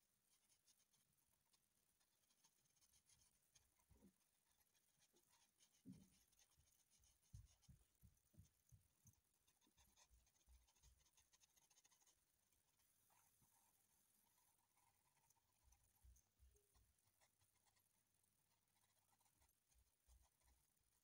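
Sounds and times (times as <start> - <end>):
pencil scratching on paper: 0.0 - 21.0
soft low bumps on paper: 3.0 - 12.1.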